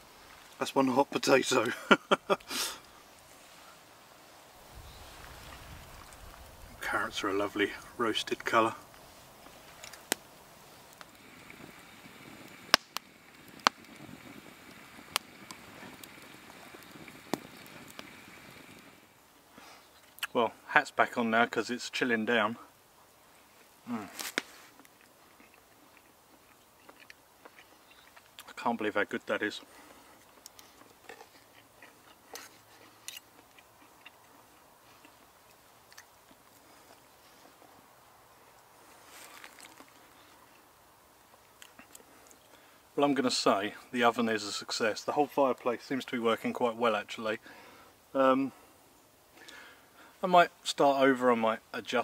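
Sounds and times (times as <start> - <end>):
wood fire crackling and popping: 0.0 - 48.6, 49.2 - 52.0.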